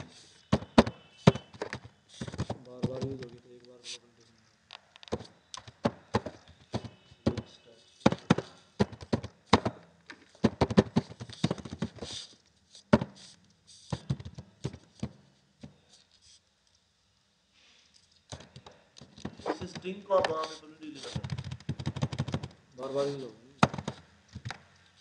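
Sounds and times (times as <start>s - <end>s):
computer keyboard typing: 20.2s - 22.6s.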